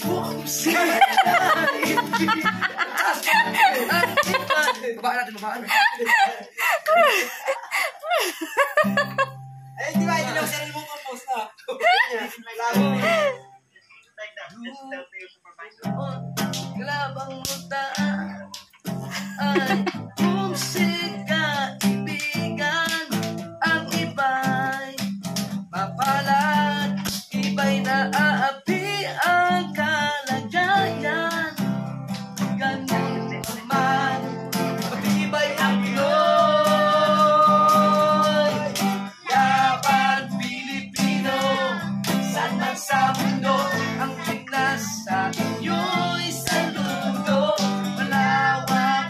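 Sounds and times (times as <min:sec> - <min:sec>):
man singing: 0:00.0 - 0:04.9, 0:11.8 - 0:13.4, 0:15.8 - 0:25.1, 0:25.7 - 0:31.7, 0:32.4 - 0:49.0
acoustic guitar strumming: 0:00.0 - 0:05.1, 0:08.6 - 0:11.0, 0:12.7 - 0:13.6, 0:15.8 - 0:49.0.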